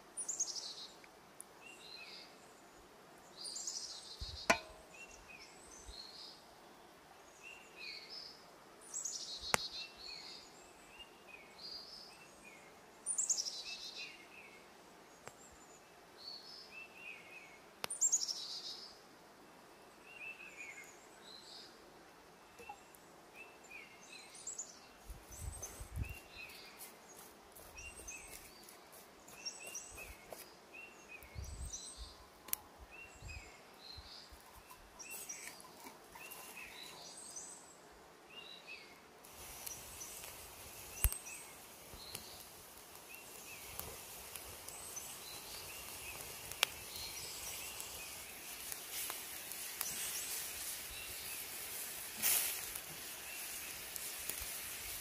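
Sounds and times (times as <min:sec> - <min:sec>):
steady hiss: 0:00.0 - 0:55.0
small birds singing: 0:00.1 - 0:55.0
wood fire cracking: 0:39.2 - 0:55.0.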